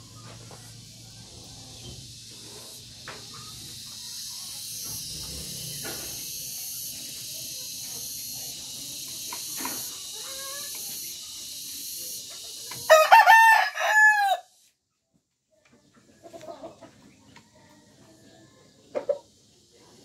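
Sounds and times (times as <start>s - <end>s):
steady high hiss: 0.7s - 13.9s
rooster crowing: 12.8s - 14.5s.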